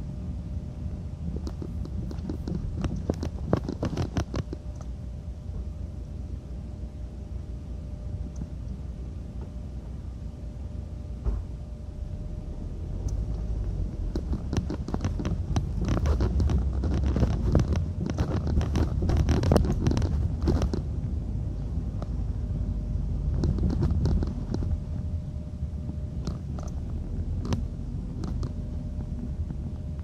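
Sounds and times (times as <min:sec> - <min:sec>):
low rumble: 0:00.0 - 0:30.0
fabric rubbing on microphone: 0:01.3 - 0:04.6, 0:13.4 - 0:20.9, 0:23.3 - 0:24.9
handling clicks and scrapes: 0:01.3 - 0:04.9, 0:13.0 - 0:20.9, 0:23.3 - 0:24.8, 0:26.2 - 0:29.6.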